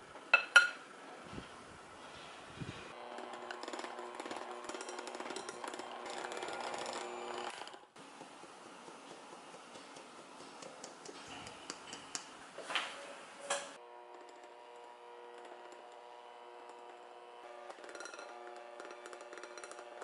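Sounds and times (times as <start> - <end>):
electric hand mixer running: 2.9 - 9.8, 13.8 - 20.0.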